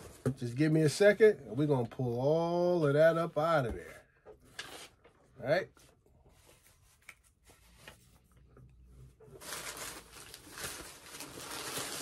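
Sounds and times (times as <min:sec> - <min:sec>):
packing paper crinkling: 0:09.3 - 0:12.0.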